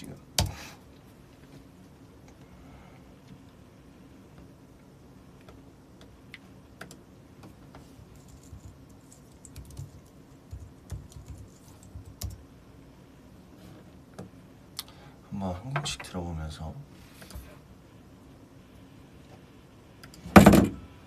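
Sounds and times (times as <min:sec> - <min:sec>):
typing on a computer keyboard: 0:08.4 - 0:12.4.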